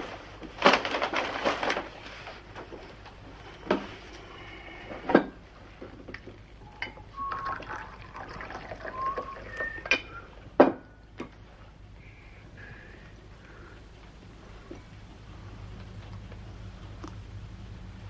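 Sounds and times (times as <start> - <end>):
liquid pouring into cup: 7.1 - 9.9
crockery clinking and knocking: 9.8 - 10.9.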